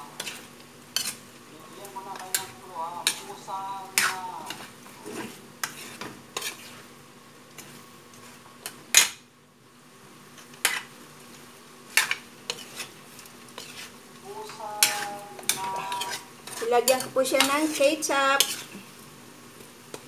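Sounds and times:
low sizzle of sauce: 0.0s - 20.0s
spatula scraping metal pan: 1.0s - 1.2s, 4.0s - 6.8s, 12.0s - 14.0s, 14.7s - 18.8s.

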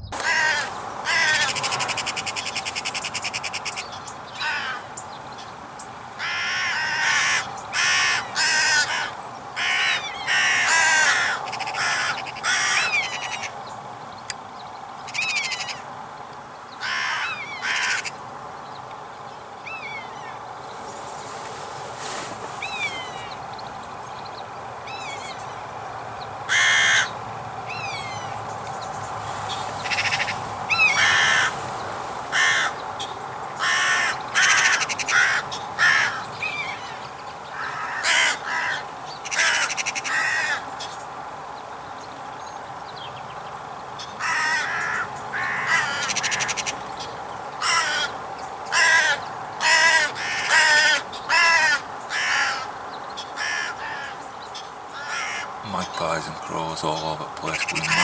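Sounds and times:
crows cawing: 0.2s - 4.9s, 6.2s - 13.6s, 15.1s - 15.9s, 16.8s - 18.2s, 26.5s - 28.4s, 29.8s - 31.6s, 32.3s - 40.9s, 44.0s - 46.8s, 47.6s - 58.0s.

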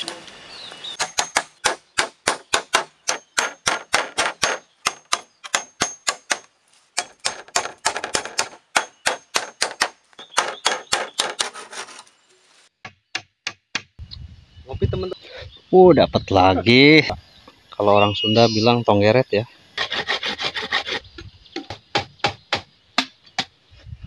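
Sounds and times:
hatchet chopping bamboo: 1.0s - 12.0s, 12.8s - 14.0s, 21.6s - 23.6s.

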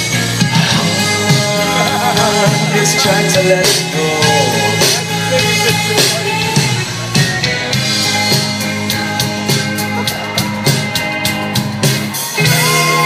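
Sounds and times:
rock band playing: 0.0s - 13.0s.

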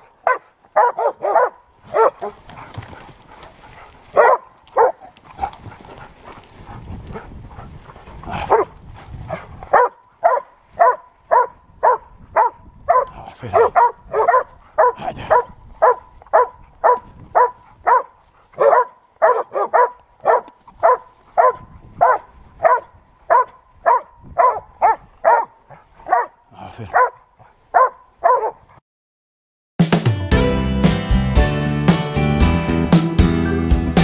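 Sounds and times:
dog barking: 0.0s - 2.7s, 4.1s - 5.1s, 8.4s - 8.7s, 9.3s - 28.7s.

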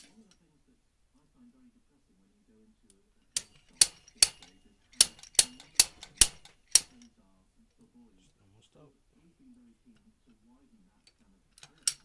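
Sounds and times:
slide hammer metal clanks: 3.4s - 7.1s.

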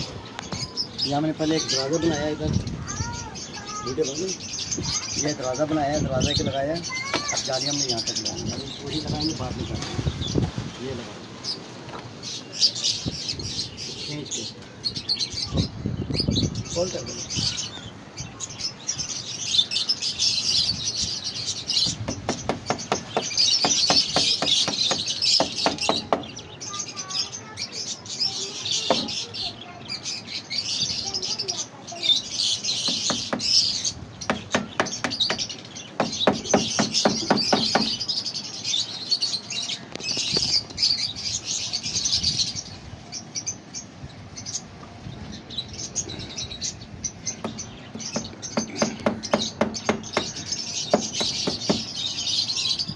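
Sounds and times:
birds chirping: 0.0s - 52.9s
hammer tapping on wood: 22.1s - 26.3s, 47.4s - 51.9s.

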